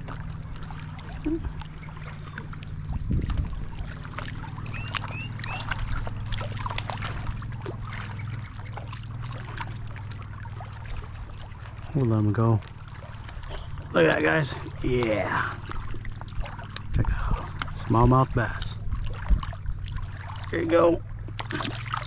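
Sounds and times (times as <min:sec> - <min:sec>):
steady low hum: 0:00.0 - 0:22.0
water splashing and dribbling: 0:00.0 - 0:22.0
short high chirps: 0:04.7 - 0:05.7.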